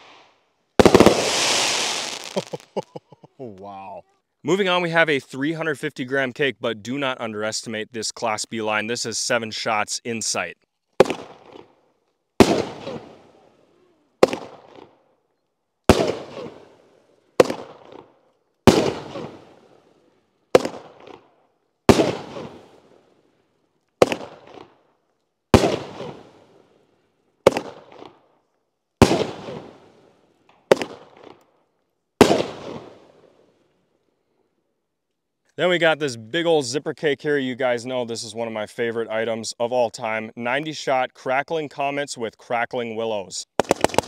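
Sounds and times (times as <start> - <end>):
firework bangs: 0.0 - 3.0, 11.0 - 11.6, 12.4 - 13.3, 14.2 - 14.9, 15.9 - 16.7, 17.4 - 18.0, 18.6 - 19.7, 20.5 - 21.2, 21.9 - 22.8, 24.0 - 24.7, 25.5 - 26.4, 27.4 - 28.1, 29.0 - 29.8, 30.7 - 31.4, 32.2 - 33.0, 43.6 - 44.0.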